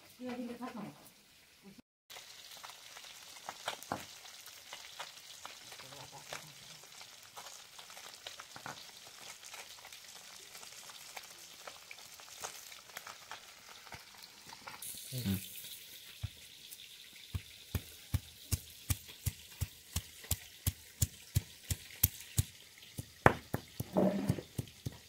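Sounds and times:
steady hiss: 14.8s - 23.4s
wet scraping and trickling water: 15.6s - 25.0s.

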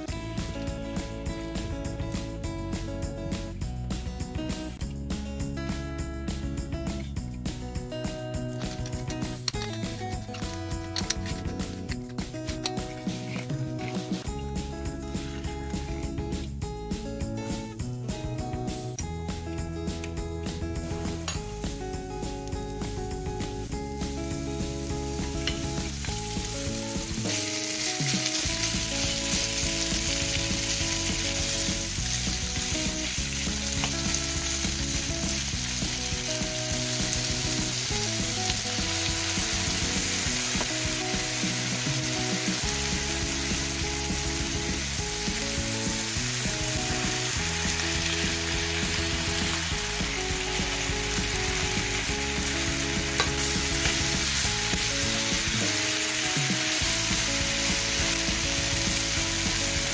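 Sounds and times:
chicken sizzling in a pan: 20.8s - 59.9s.

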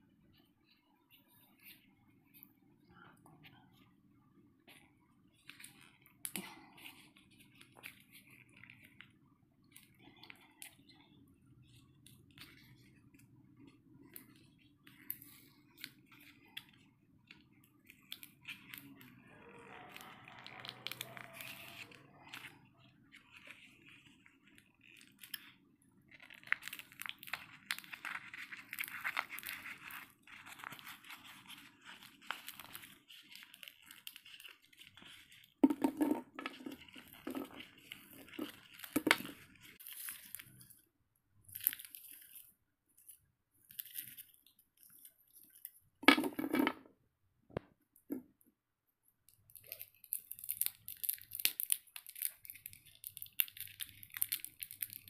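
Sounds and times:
plastic wrappers crinkling and tearing: 13.6s - 35.6s, 36.5s - 40.8s, 49.5s - 55.0s.

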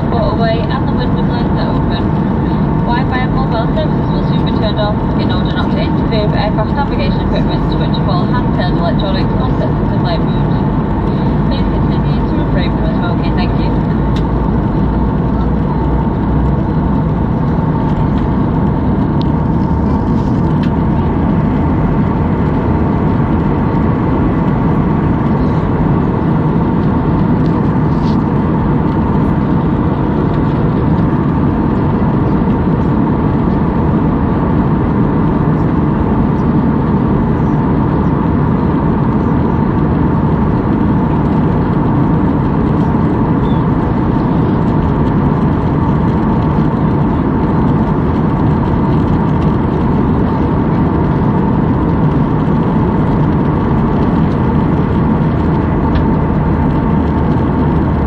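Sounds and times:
faint steady whine: 0.0s - 58.0s
jet engines and airflow rushing: 0.0s - 58.0s.

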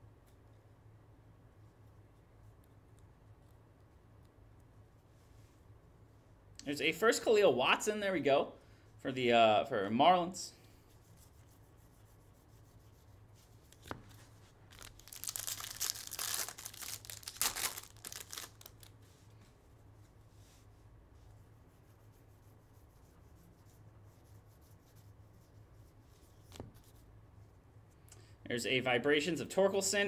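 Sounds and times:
wrapper tearing and crinkling: 14.7s - 18.9s.

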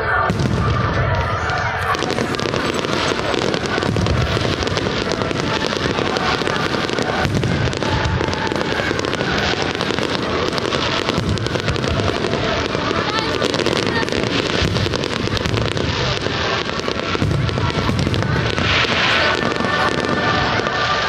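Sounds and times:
fireworks crackling: 0.0s - 21.0s
deep firework booms: 0.1s - 21.0s.

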